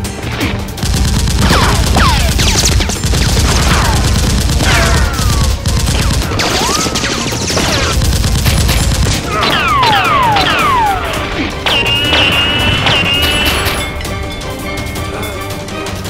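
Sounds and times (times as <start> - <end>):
rapid automatic gunfire effects: 0.8 - 11.2.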